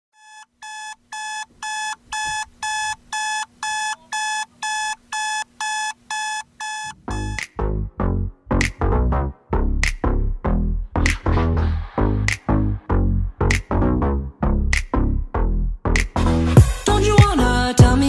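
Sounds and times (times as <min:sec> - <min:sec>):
digital alarm clock beeping: 0:00.2 - 0:07.4
electronic music with heavy bass: 0:07.0 - 0:18.0.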